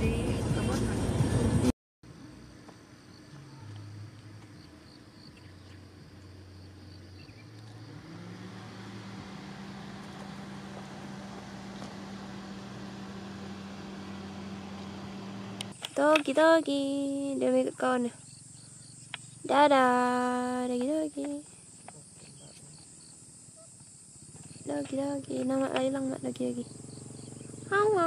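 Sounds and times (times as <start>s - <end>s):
vehicle engine humming: 0.0s - 28.0s
insects chirping: 2.1s - 28.0s.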